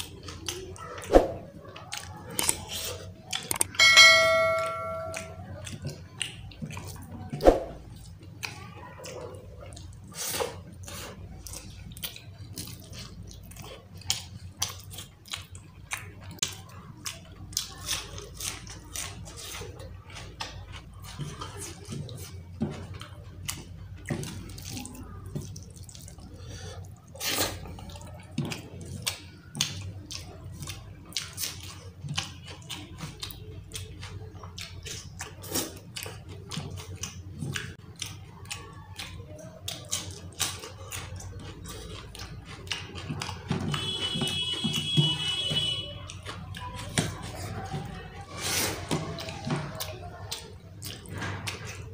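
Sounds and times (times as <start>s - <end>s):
chewing: 0.0s - 51.9s
fingers squelching food: 5.1s - 51.9s.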